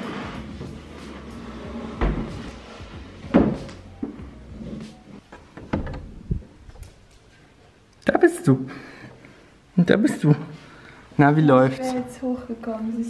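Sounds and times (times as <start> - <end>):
dull scraping: 0.0 - 5.2.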